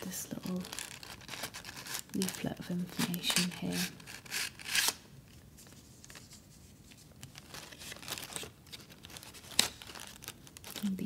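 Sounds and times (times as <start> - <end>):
cardboard box crinkling: 0.0 - 5.0, 6.0 - 11.0.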